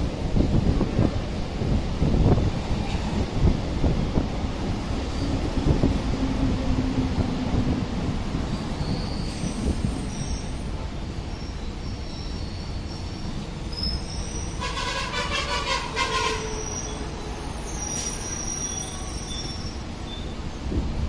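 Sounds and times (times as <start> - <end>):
train rumbling on track: 0.0 - 21.0
metallic wheel squeal: 8.8 - 10.7, 11.4 - 20.4.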